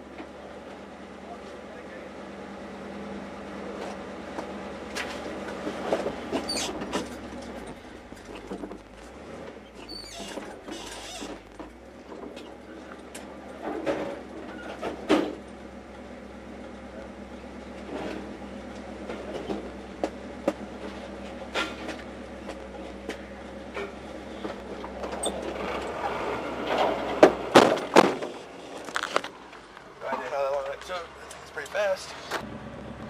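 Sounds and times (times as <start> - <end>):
low engine hum: 0.0 - 33.0
scrap metal clanking: 4.9 - 15.5, 17.8 - 18.4, 19.0 - 32.4.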